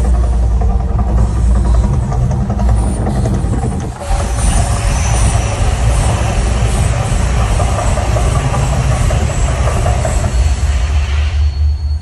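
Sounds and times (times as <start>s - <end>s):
gas fire jets roaring: 0.0s - 11.6s
deep continuous rumble: 0.0s - 12.0s.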